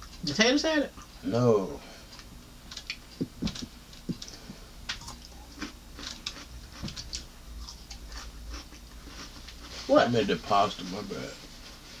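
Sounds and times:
chewing food with crunches: 0:02.1 - 0:09.9.

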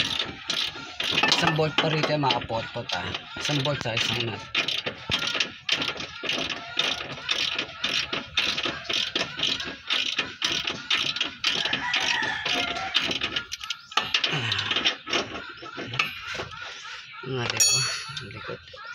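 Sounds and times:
ratchet wrench clicking: 0:00.0 - 0:01.6, 0:04.6 - 0:14.6.

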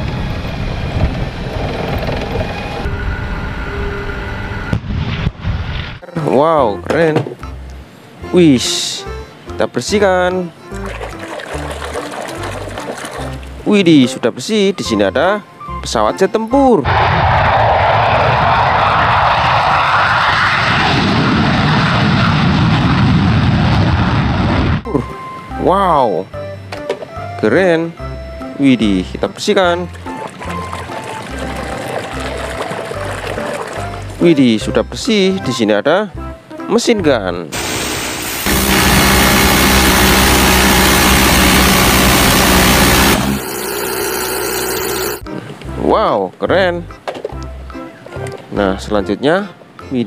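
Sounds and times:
jet engine roaring: 0:00.0 - 0:04.8, 0:16.9 - 0:24.8, 0:37.6 - 0:44.1
machine gun firing burst: 0:38.3 - 0:45.2.

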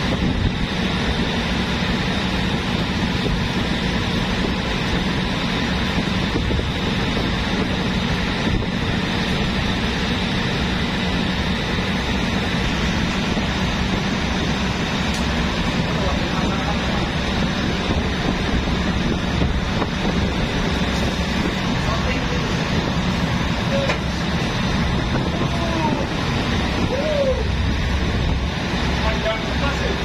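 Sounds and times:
boat engine droning: 0:00.0 - 0:30.0
hose water spraying on deck: 0:00.0 - 0:30.0.

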